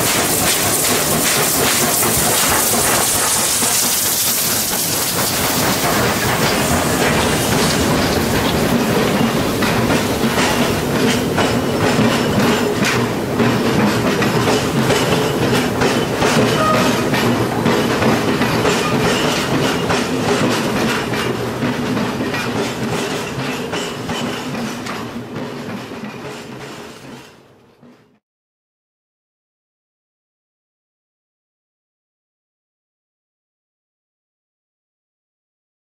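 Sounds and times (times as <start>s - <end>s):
wheels clicking over rail joints: 0.0s - 28.1s
train coaches rumbling past: 0.0s - 28.2s.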